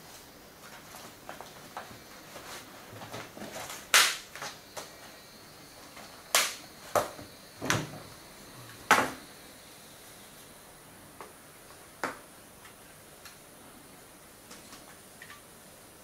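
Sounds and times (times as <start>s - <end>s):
paper rustling: 0.0s - 4.6s.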